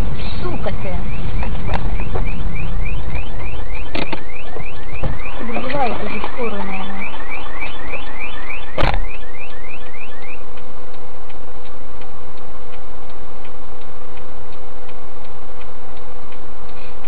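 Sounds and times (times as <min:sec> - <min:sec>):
car alarm whooping: 0:00.0 - 0:10.5
steady hum: 0:00.0 - 0:17.0
steady ticking: 0:00.0 - 0:17.0
loud thump: 0:01.4 - 0:06.4, 0:07.9 - 0:09.1.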